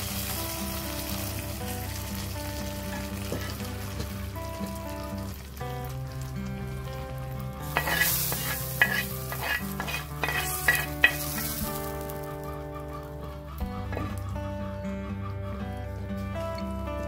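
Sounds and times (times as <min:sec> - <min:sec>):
hot oil sizzling: 0:00.0 - 0:12.4
wooden spatula scraping a pan: 0:07.7 - 0:12.1.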